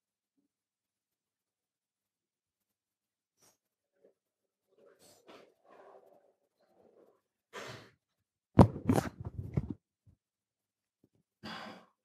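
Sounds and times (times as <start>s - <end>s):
microphone handling rustle: 8.6s - 9.8s
thumps and knocks on microphone: 8.6s - 9.8s.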